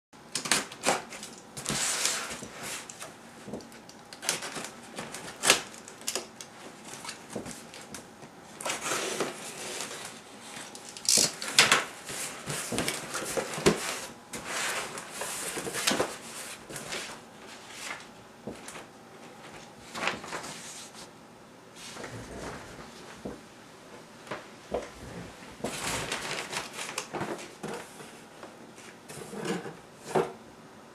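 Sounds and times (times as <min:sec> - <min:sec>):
paper rustling: 0:00.4 - 0:21.1, 0:24.3 - 0:28.2.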